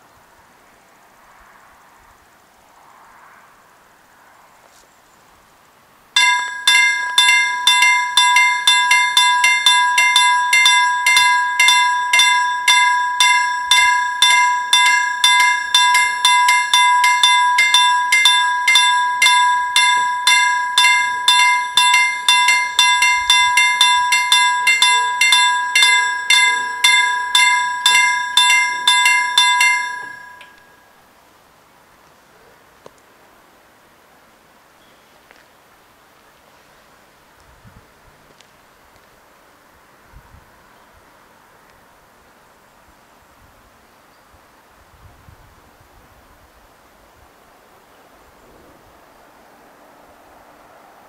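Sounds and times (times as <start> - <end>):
level crossing bells ringing: 6.2 - 31.0.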